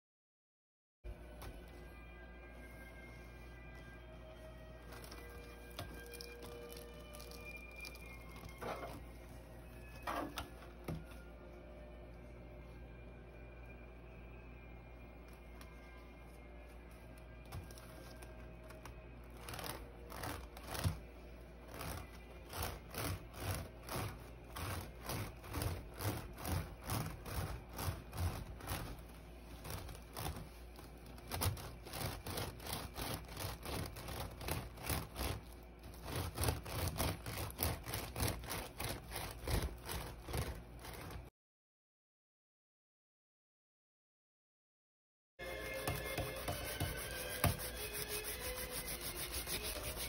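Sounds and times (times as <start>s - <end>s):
wax block scraping woven basket: 17.4s - 41.3s, 45.4s - 50.0s.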